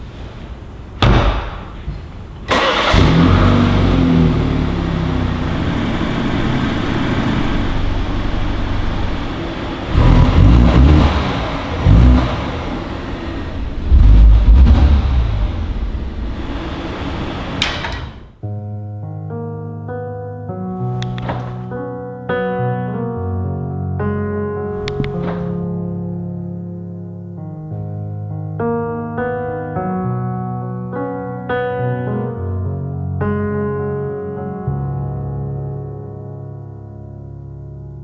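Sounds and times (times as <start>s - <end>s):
car engine starting and idling: 2.4s - 18.4s
engine revving: 2.5s - 17.6s.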